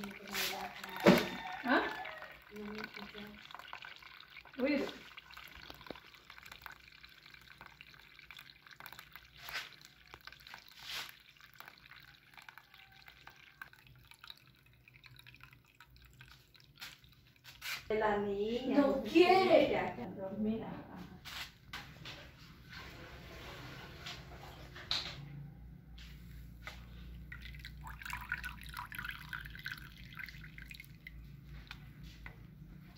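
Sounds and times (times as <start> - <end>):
liquid swishes: 0.0 - 18.0
juice trickling into tub: 0.0 - 19.4, 26.6 - 32.9.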